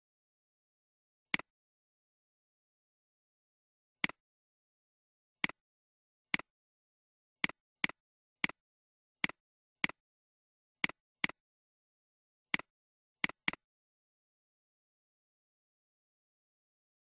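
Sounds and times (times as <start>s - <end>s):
computer mouse clicking: 12.6s - 13.6s.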